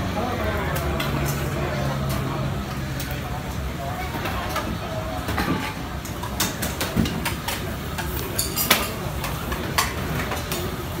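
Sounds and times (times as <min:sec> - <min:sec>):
metal utensils and pots clattering: 0:04.0 - 0:11.0.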